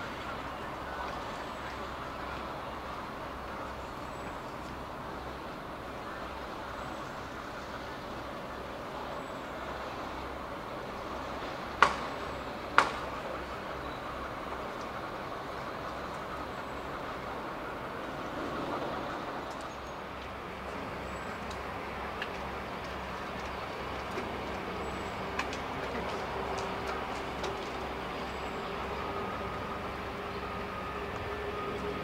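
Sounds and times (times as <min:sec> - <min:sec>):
diesel locomotive running: 0:00.0 - 0:32.0
sharp knocks: 0:11.8 - 0:12.1.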